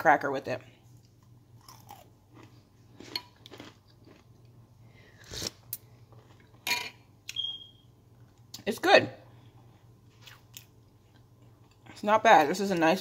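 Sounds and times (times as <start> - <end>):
cracker crunching: 1.0 - 4.6.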